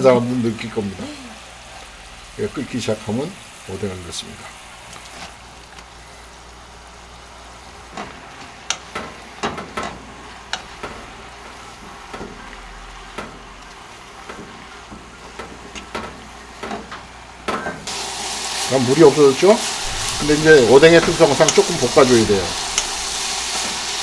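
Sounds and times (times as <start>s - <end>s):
food sizzling in a frying pan: 0.0s - 24.0s
spatula knocking and scraping pan: 19.8s - 23.9s.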